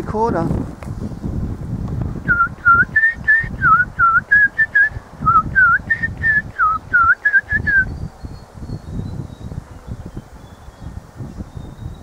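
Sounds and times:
person whistling birdlike notes: 0:02.3 - 0:08.0.

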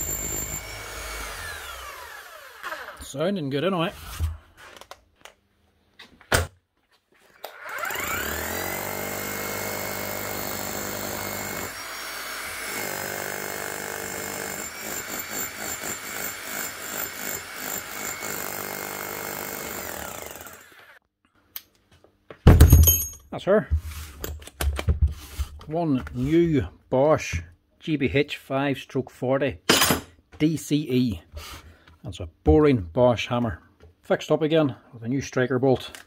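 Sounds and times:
demolition hammer motor running: 0:00.0 - 0:03.0, 0:07.5 - 0:21.0.

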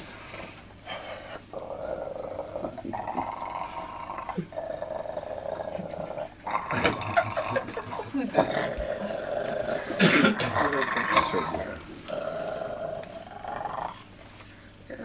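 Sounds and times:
man imitating an animal: 0:09.8 - 0:11.8.

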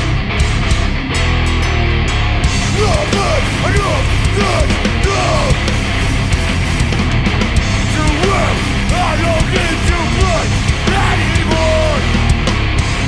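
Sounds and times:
live punk band playing: 0:00.0 - 0:13.0.

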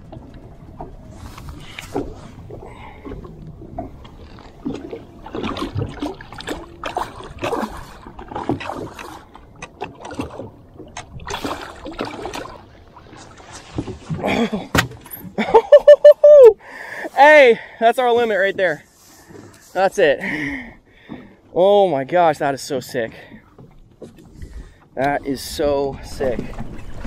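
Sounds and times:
fish splashing beside boat: 0:00.2 - 0:15.4.

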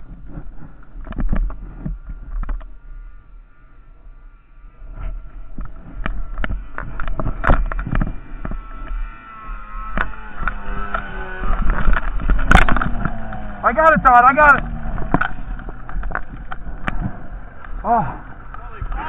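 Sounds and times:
snowmobile engine running: 0:00.0 - 0:19.0
sharp knocks and thumps: 0:09.9 - 0:19.0.

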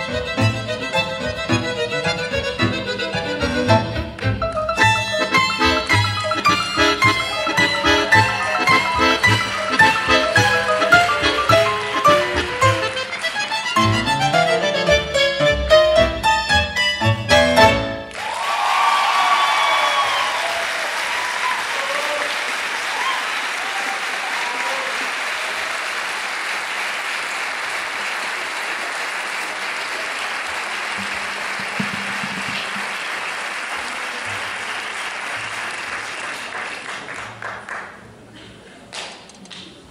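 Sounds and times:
audience applauding: 0:04.2 - 0:14.5, 0:18.1 - 0:39.2.

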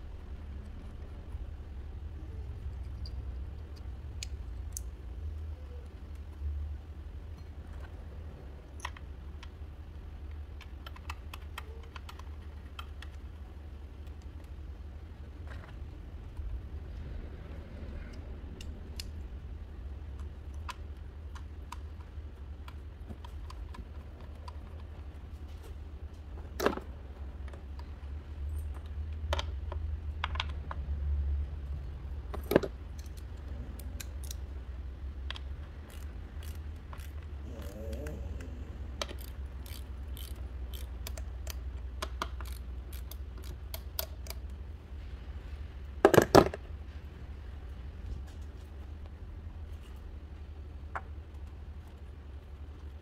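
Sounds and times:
low steady hum: 0:00.0 - 0:53.0
ratchet clattering: 0:35.8 - 0:37.2, 0:39.0 - 0:41.6
metallic tool clicks: 0:39.0 - 0:44.5.

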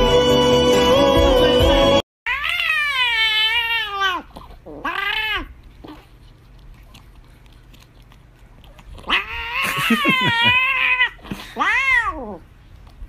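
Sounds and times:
cat meowing: 0:02.3 - 0:05.5, 0:09.0 - 0:12.4
cat yowling: 0:02.3 - 0:05.5, 0:09.0 - 0:12.4.

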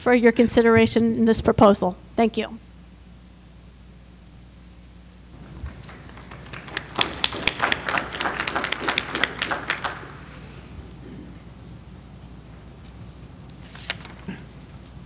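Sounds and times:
small group applauding: 0:05.4 - 0:10.7.

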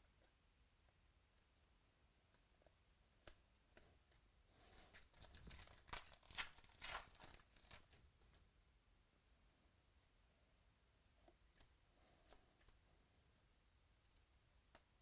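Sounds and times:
wrapper tearing and crackling: 0:04.9 - 0:08.0.

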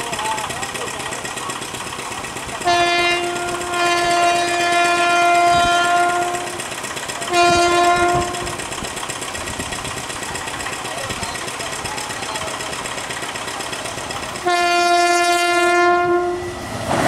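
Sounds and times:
train running noise: 0:00.0 - 0:17.0
locomotive horn blasts: 0:02.6 - 0:08.6, 0:14.4 - 0:16.6.

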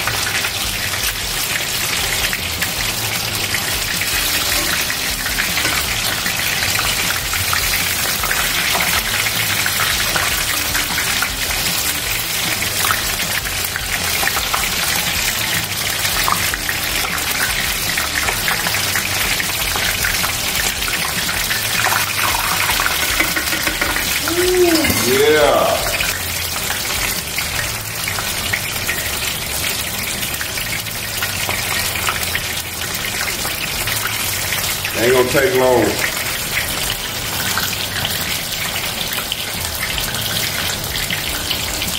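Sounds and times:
shrimp deep-frying in hot oil: 0:00.0 - 0:41.9.

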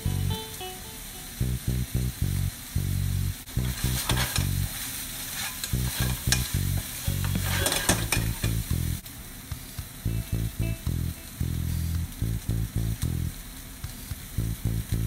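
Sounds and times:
food sizzling in pan: 0:00.0 - 0:14.8
spatula scraping frying pan: 0:03.6 - 0:08.7.

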